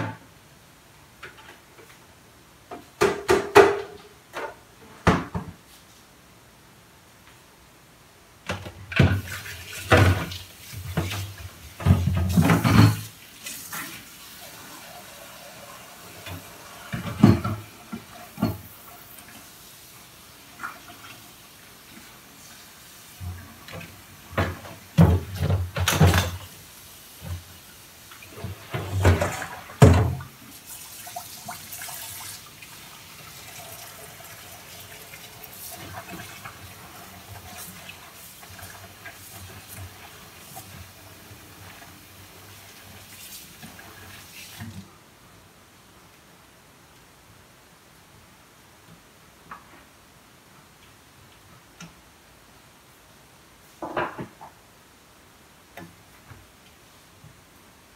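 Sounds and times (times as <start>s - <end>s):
dishes knocking and clattering: 3.0s - 5.6s, 10.9s - 13.1s, 16.9s - 18.7s, 23.6s - 26.5s, 28.7s - 30.2s, 53.8s - 54.6s.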